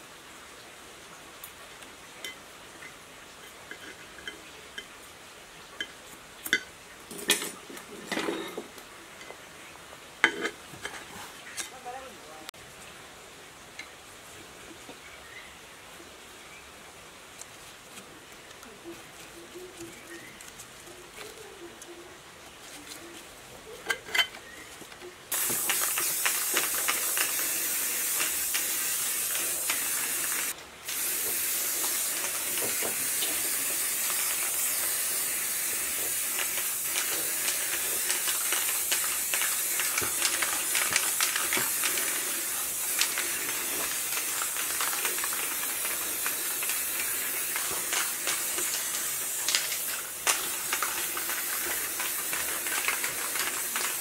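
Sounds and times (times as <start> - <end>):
spray paint can hissing: 25.3 - 54.0.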